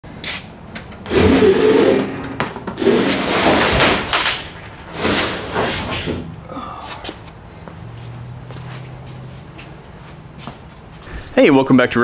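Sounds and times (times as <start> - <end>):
metal roof rack scraping and rattling: 1.0 - 6.2.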